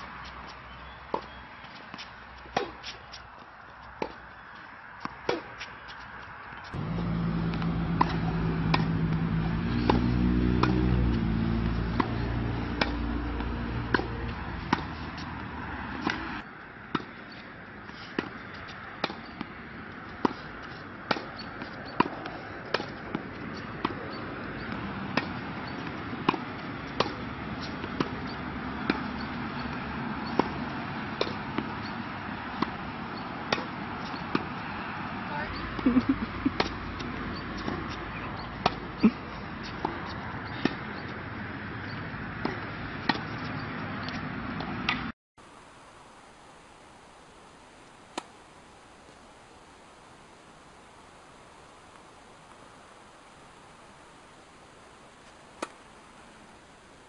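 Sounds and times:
tennis ball bouncing: 0.4 - 3.2, 3.8 - 4.4, 5.0 - 17.3, 18.2 - 45.1, 48.1 - 48.3, 55.6 - 55.8
tennis balls struck with rackets: 0.4 - 3.2, 3.9 - 4.3, 5.0 - 17.2, 18.1 - 45.1, 48.1 - 48.3, 55.6 - 55.9
loud low engine-like drone: 6.8 - 14.9.

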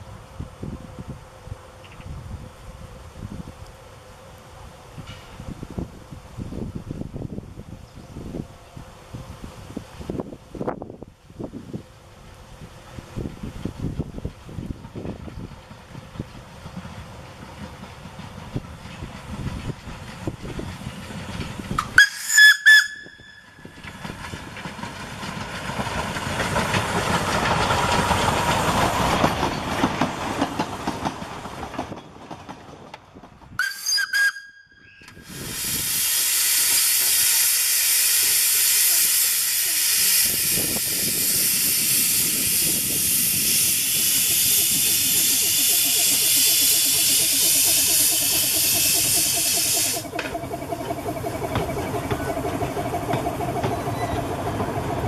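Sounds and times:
train running past: 0.0 - 55.0
steam locomotive whistle toots: 21.8 - 24.0, 33.6 - 50.4
hiss of escaping steam: 35.1 - 50.2.

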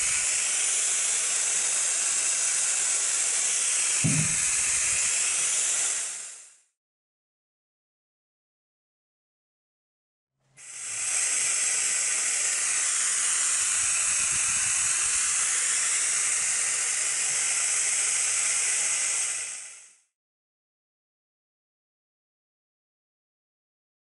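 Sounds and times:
vacuum gripper air hiss: 0.0 - 6.5, 10.6 - 20.1.

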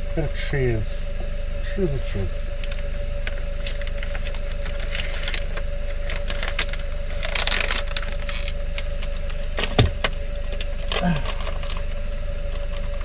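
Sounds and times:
steady low hum: 0.0 - 13.0
plastic packet crinkling: 3.6 - 9.7, 10.5 - 11.9.

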